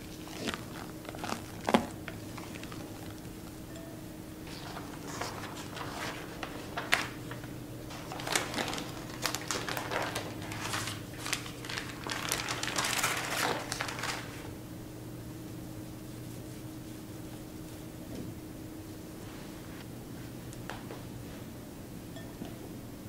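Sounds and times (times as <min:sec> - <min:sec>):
crinkling and rustling: 0:00.0 - 0:03.3, 0:04.5 - 0:14.5.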